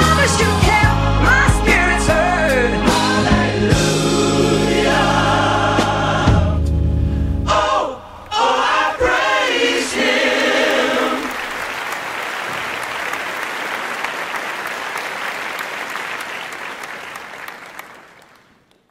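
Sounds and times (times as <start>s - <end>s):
choir singing held notes: 0.0s - 6.8s, 7.4s - 11.5s
applause: 10.4s - 18.9s.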